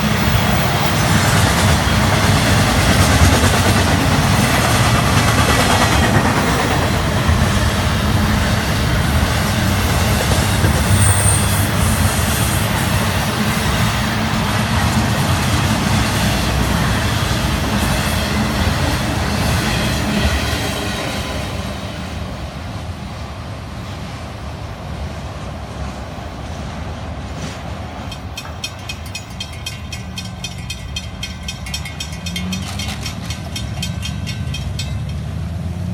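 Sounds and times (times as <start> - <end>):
freight train cars rolling on rails: 0.0 - 35.9
grade-crossing bell ringing: 28.1 - 35.9.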